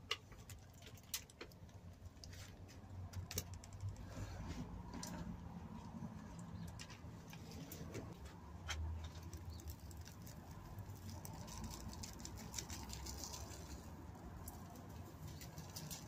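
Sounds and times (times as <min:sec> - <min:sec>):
granules pattering onto compost: 0:06.6 - 0:16.0.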